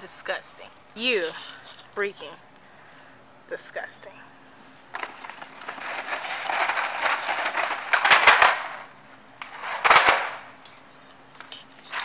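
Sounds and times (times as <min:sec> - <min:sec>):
rustling handling noise: 0:04.9 - 0:12.0
loud crackly bursts: 0:05.0 - 0:08.9.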